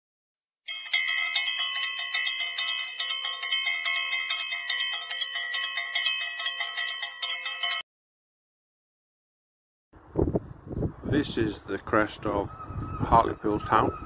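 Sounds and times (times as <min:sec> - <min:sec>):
bicycle bell ringing: 0:00.7 - 0:07.9.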